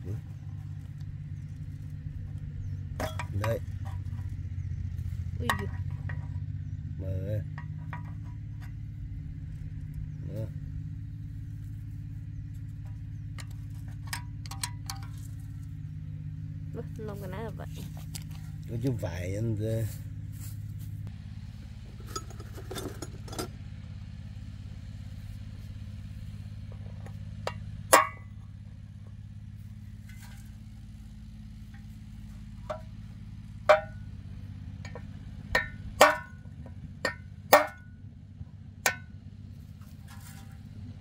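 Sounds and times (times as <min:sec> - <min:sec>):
low engine hum: 0:00.0 - 0:41.0
steel tools clinking on metal: 0:03.0 - 0:04.0.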